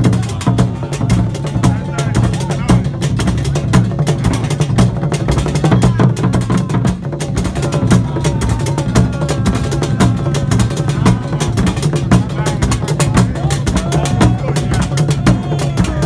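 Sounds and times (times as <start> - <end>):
large drums beaten fast: 0.0 - 16.0.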